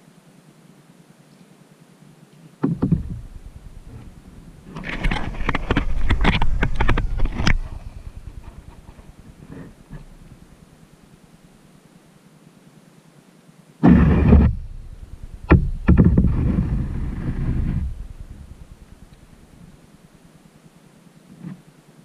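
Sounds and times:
low rumble: 2.7s - 10.6s, 14.0s - 19.8s.

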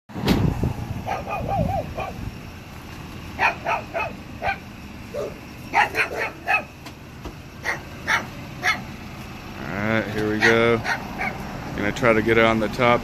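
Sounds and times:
low engine rumble: 0.1s - 13.0s
dog whining: 1.1s - 2.2s.

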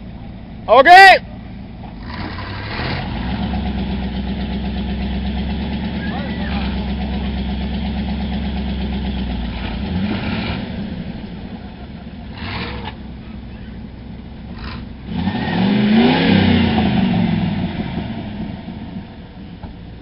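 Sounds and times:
pickup truck engine revving: 1.5s - 20.0s.

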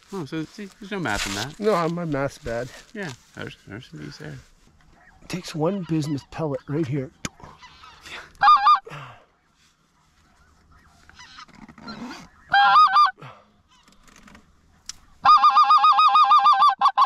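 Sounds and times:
goose call clucks: 5.0s - 6.7s, 7.3s - 8.9s, 10.8s - 13.9s, 14.9s - 17.0s
goose call honks: 7.4s - 8.9s, 11.2s - 13.2s, 15.2s - 17.0s.

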